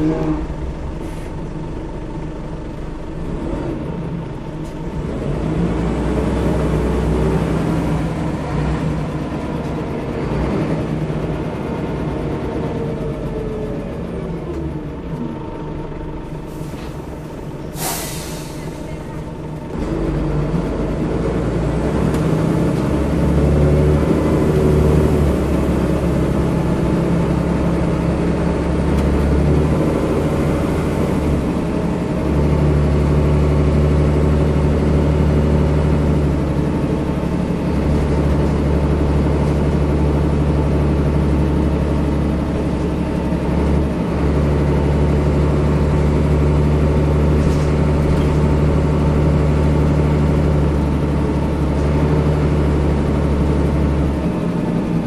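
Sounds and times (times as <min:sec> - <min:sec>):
bus diesel engine: 0:00.0 - 0:55.0
air hiss: 0:17.8 - 0:18.8.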